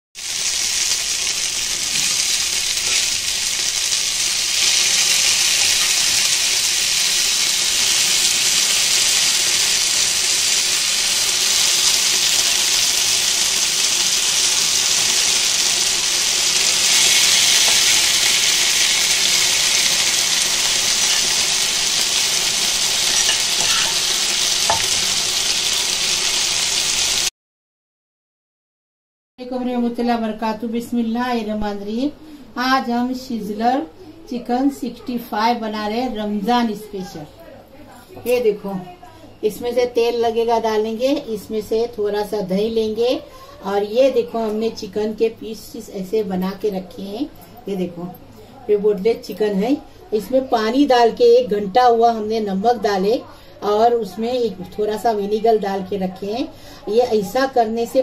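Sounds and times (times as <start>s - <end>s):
food sizzling on hot plate: 0.2s - 27.3s.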